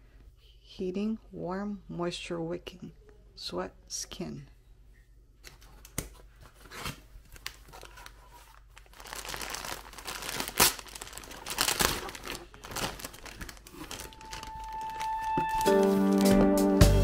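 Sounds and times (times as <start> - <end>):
plastic bag crinkling: 7.3 - 16.5.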